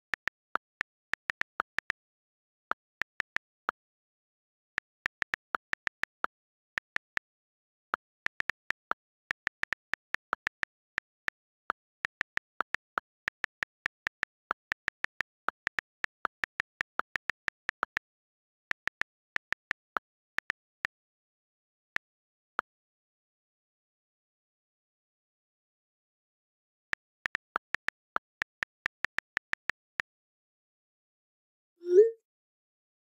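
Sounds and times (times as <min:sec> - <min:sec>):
on-screen keyboard clicks: 0:08.0 - 0:20.7, 0:27.0 - 0:29.9.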